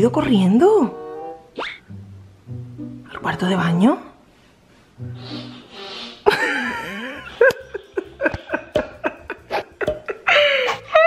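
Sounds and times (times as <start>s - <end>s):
woman laughing: 6.2s - 11.0s.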